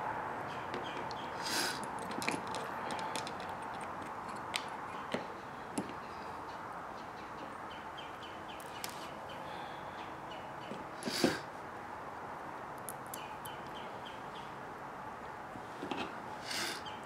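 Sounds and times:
steady background hiss: 0.0s - 17.0s
small parts clicking and tapping: 1.8s - 6.0s.

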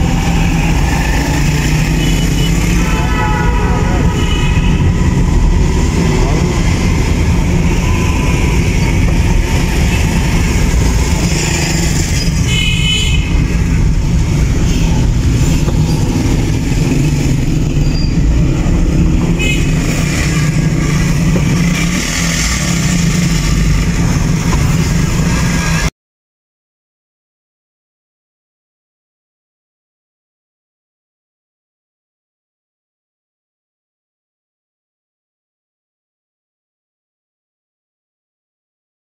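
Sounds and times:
car driving in traffic: 0.0s - 25.9s
vehicle horn: 1.7s - 5.2s, 12.4s - 13.5s, 19.3s - 20.0s.

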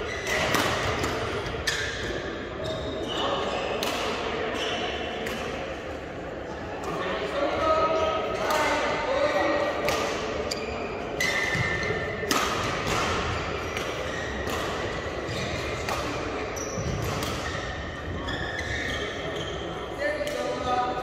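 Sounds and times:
shoes squeaking on court: 0.0s - 3.8s, 10.5s - 12.1s, 13.3s - 19.9s
racket hitting shuttlecock: 0.2s - 2.2s, 3.8s - 4.3s, 9.8s - 10.4s, 11.2s - 17.8s.

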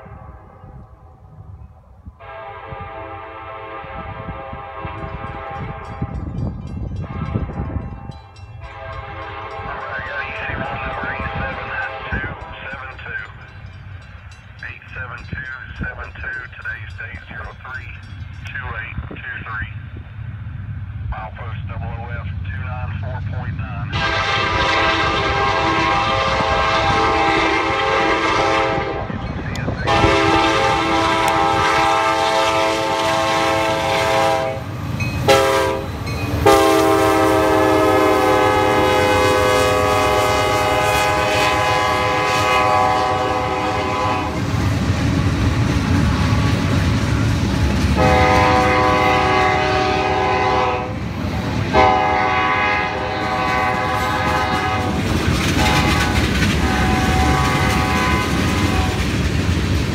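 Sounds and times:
train air horn blasts: 0.0s - 0.6s, 2.2s - 6.4s, 7.0s - 12.6s, 23.9s - 29.2s, 29.8s - 44.5s, 48.0s - 51.0s, 51.7s - 55.0s, 55.6s - 59.0s
diesel locomotive rumble: 0.0s - 59.9s.

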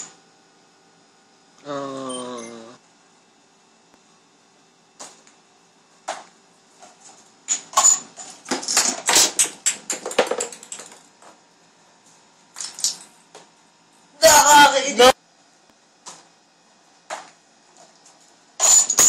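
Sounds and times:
small pieces clattering and toppling: 12.6s - 13.0s.

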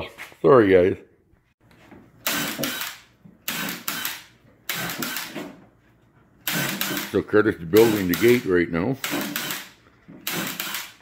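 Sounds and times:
cordless drill driving screws into wood: 2.2s - 5.6s, 6.4s - 7.2s, 7.8s - 8.4s, 9.0s - 11.0s.

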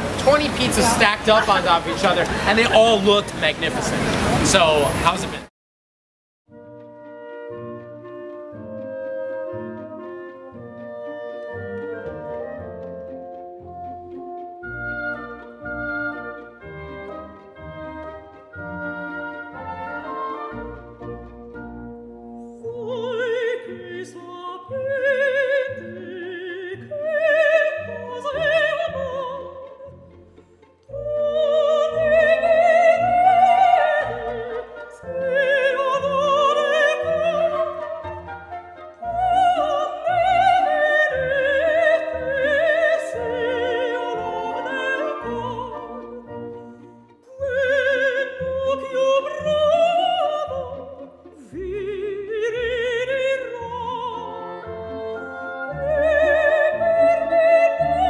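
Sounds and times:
orchestral accompaniment: 0.0s - 5.4s, 6.5s - 58.0s
operatic singing: 22.6s - 30.1s, 30.9s - 58.0s.

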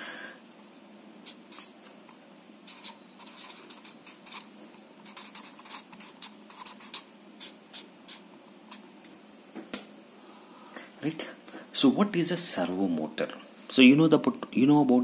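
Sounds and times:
marker scratching on paper: 1.2s - 1.9s, 2.6s - 8.9s.

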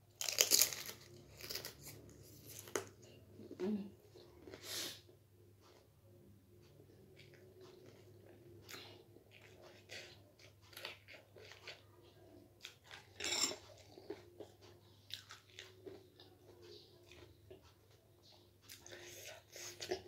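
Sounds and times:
person chewing crunchy snack: 0.2s - 2.9s, 12.6s - 16.3s.

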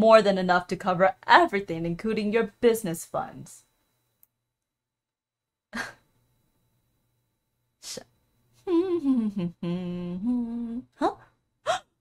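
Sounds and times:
woman humming: 8.6s - 12.0s.

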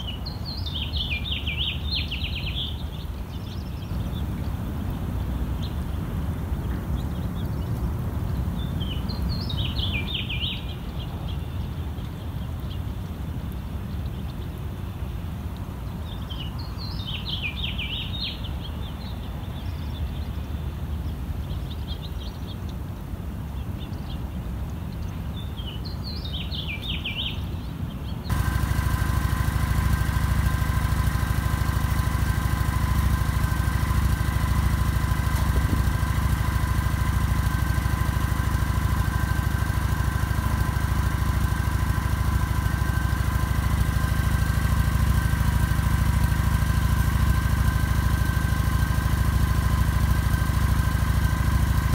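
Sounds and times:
motorcycle engine idling: 0.0s - 22.7s, 28.2s - 51.9s
small birds chirping: 0.0s - 51.9s
thin whine: 28.3s - 51.9s.

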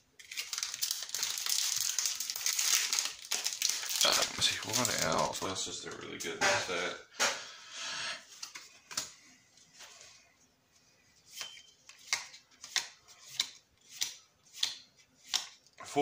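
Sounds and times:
soft card rustle: 0.2s - 5.5s
cards snapping when flipped: 11.4s - 15.6s.

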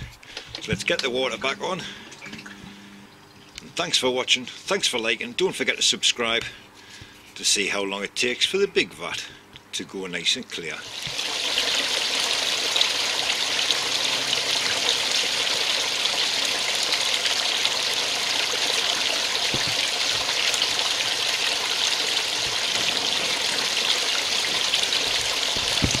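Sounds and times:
water splashing into pond: 10.8s - 26.0s.

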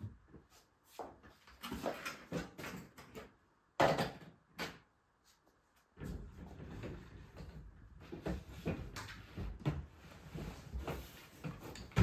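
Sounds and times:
rummaging knocks and rustles: 6.0s - 12.0s.

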